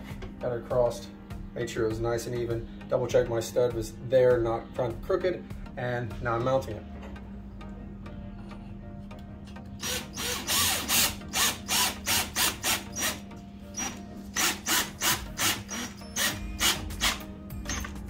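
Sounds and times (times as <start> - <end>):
cordless drill driving screw: 9.8 - 13.2, 13.8 - 17.9.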